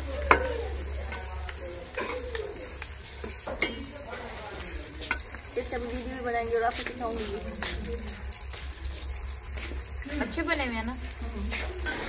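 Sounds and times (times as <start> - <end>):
chicken sizzling in a pot: 0.0 - 12.0
metal ladle scraping a pot: 11.5 - 12.0.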